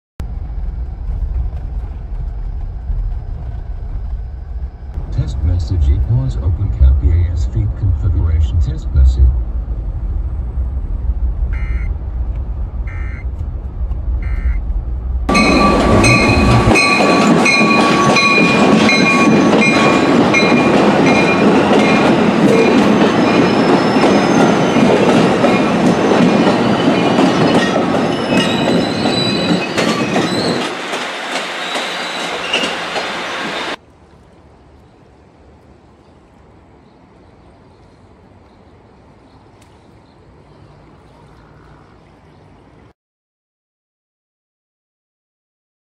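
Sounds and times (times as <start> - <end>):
in-car road rumble: 0.2 - 17.0
train wheel clatter: 13.3 - 33.8.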